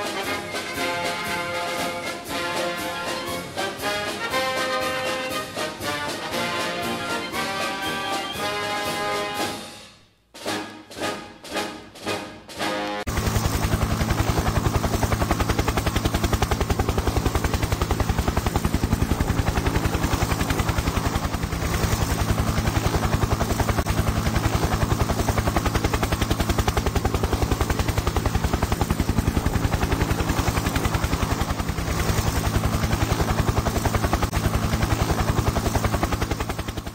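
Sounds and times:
helicopter rotor chop: 0.0s - 9.5s, 13.0s - 36.9s
orchestral music: 0.0s - 13.1s
rapid steady pounding: 10.4s - 36.9s
low hum: 13.1s - 36.9s.

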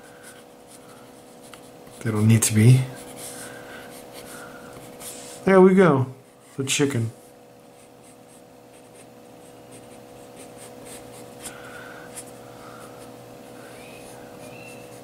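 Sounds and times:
pen scratching on paper: 7.8s - 11.3s.

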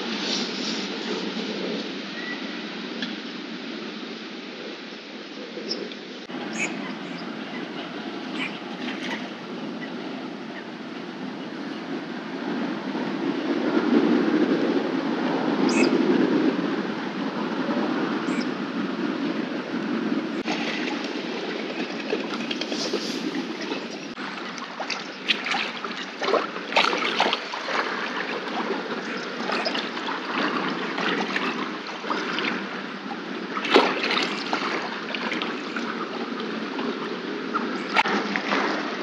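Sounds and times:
lake water lapping: 6.2s - 12.4s, 17.6s - 39.0s.

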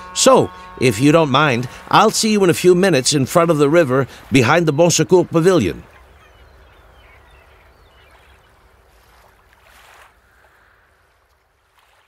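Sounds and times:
low steady rumble: 0.0s - 9.5s
moving water: 0.0s - 12.0s.

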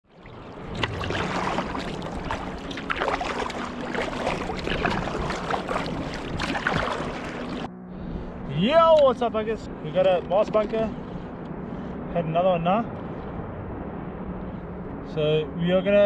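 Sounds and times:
water washing along hull: 0.0s - 13.6s
paddle splashing water: 0.1s - 7.7s.

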